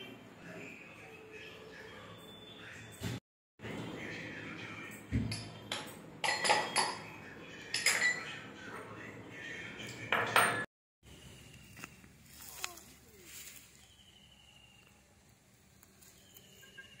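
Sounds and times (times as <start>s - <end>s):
spoon clinking against glass: 5.3s - 7.1s, 7.7s - 8.3s.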